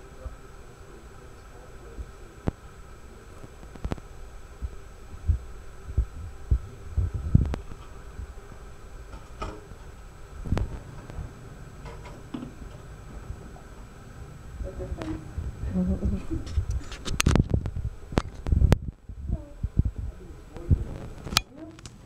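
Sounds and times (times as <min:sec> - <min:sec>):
room noise hum: 0:00.0 - 0:22.0
dull low thumps: 0:03.7 - 0:11.7, 0:14.4 - 0:21.2.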